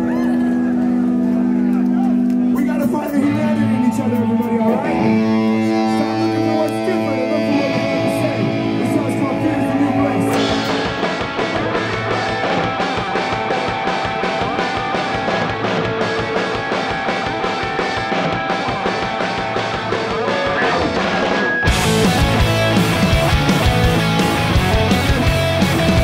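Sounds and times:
electric guitar chords ringing: 0.0s - 26.0s
punk rock band playing: 0.0s - 26.0s.

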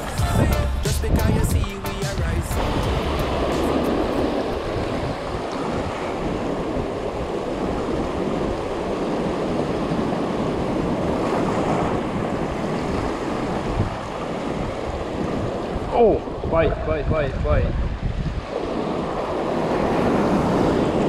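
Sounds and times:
surf washing over rocks: 0.0s - 21.0s
wind buffeting microphone: 0.0s - 21.0s.

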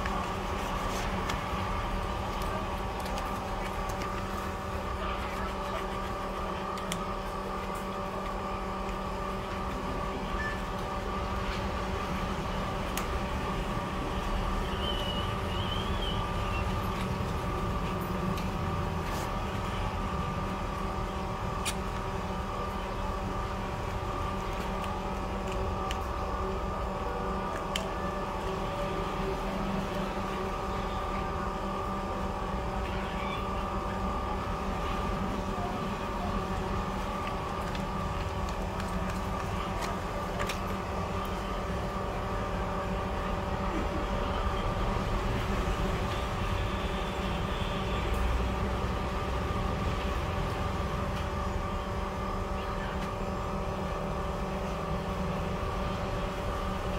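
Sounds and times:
steady machine hum: 0.0s - 56.9s.

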